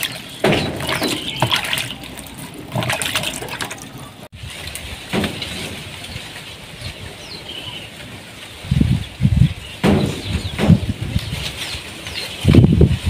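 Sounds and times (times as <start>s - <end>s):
falling bird chirps: 0.0s - 2.1s, 5.1s - 12.9s
low rumbling thumps: 8.6s - 11.4s.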